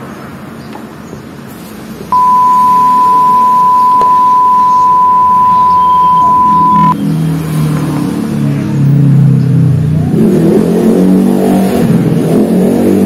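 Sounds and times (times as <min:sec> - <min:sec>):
steady test tone beep: 0:02.2 - 0:07.0.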